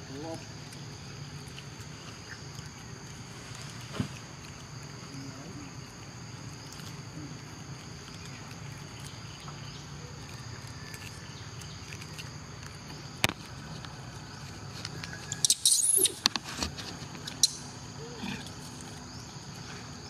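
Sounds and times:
monkey squealing: 15.3 - 16.2.

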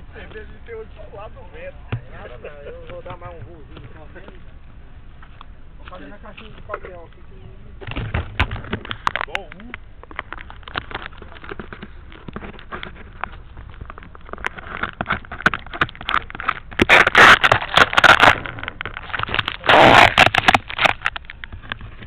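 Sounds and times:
rubbing bursts: 14.5 - 21.2.

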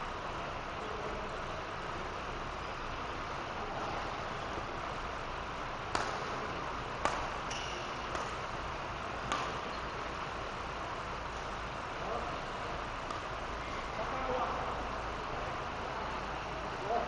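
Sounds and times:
background hiss: 0.0 - 17.0
racket striking shuttlecock: 5.9 - 10.0, 13.0 - 13.4.

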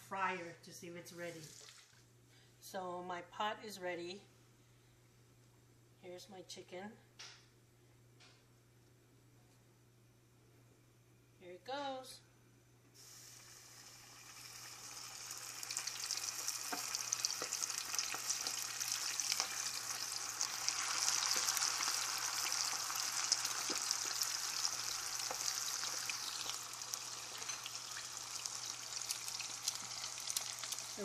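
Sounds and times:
chicken deep-frying in oil: 13.0 - 31.0.

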